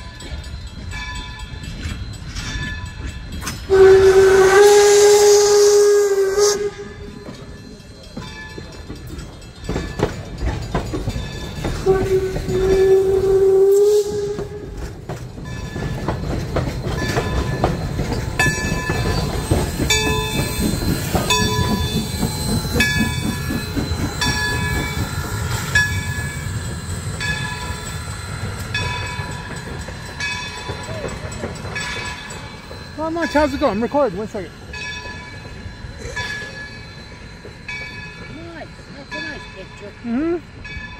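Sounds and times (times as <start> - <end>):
steam locomotive exhaust beats: 0.0 - 40.9
steam whistle blasts: 3.6 - 7.4, 11.8 - 14.9
bell ringing: 18.3 - 40.9.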